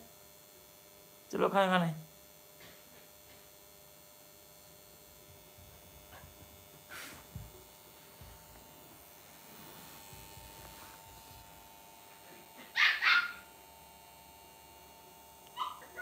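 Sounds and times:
small dog barking: 0:12.4 - 0:13.5, 0:15.5 - 0:16.0.

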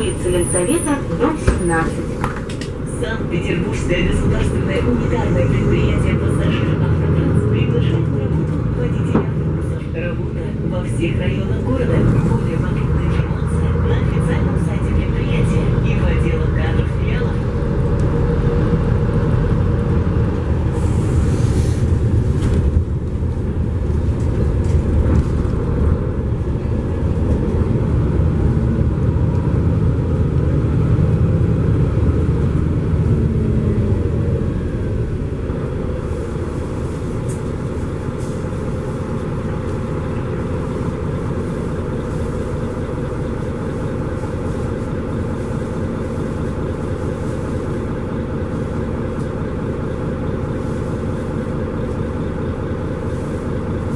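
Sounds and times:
bus engine drone: 0:00.0 - 0:53.9
road rumble: 0:00.0 - 0:53.9.

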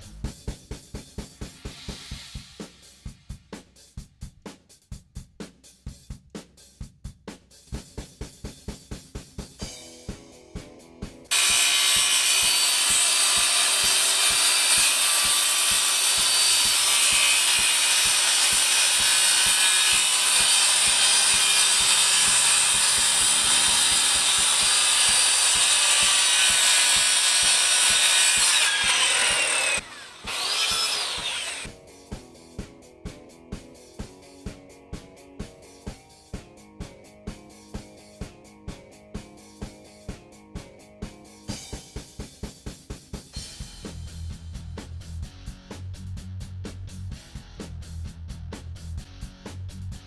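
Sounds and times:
circular saw cutting plywood: 0:11.3 - 0:31.7.

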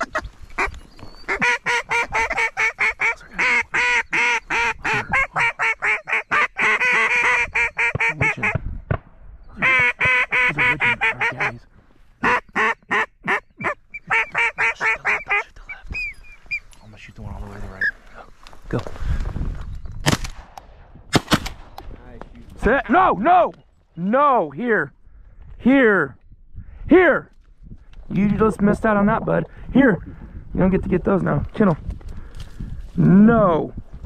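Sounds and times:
duck call quacking: 0:01.3 - 0:08.6, 0:09.6 - 0:11.6, 0:12.2 - 0:15.5.

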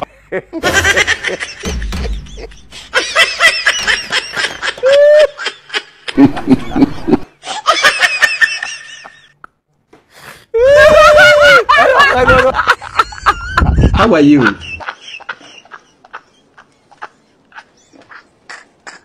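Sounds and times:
deep chuckling: 0:00.0 - 0:07.4, 0:10.6 - 0:19.0
high-pitched cackling laughter: 0:10.6 - 0:19.0.

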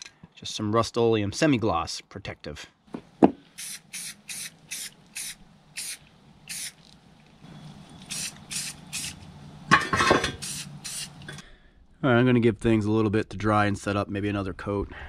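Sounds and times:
aerosol spray hiss: 0:03.6 - 0:06.8, 0:08.0 - 0:09.2, 0:10.4 - 0:11.4.

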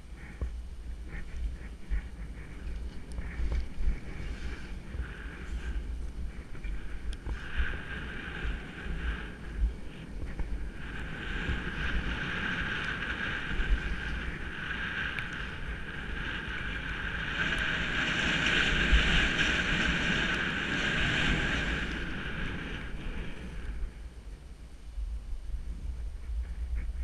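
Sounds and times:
wind buffeting microphone: 0:00.0 - 0:27.0
skis hissing through snow: 0:00.1 - 0:24.2.

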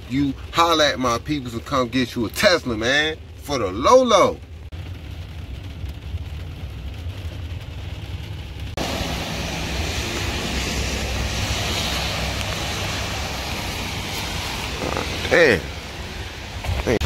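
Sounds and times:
rain falling outdoors: 0:00.0 - 0:17.0
low rumble: 0:04.4 - 0:17.0.

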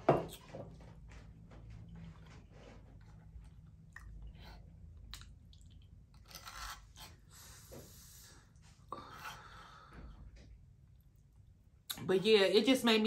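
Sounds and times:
chewing: 0:02.0 - 0:07.2.

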